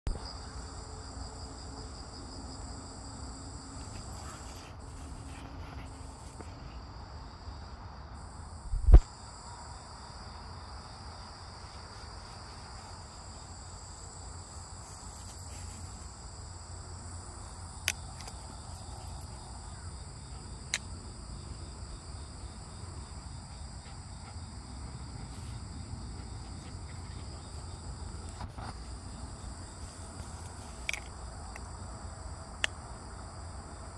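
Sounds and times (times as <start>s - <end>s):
insects trilling: 0.1s - 33.9s
loud low thump: 8.7s - 9.0s.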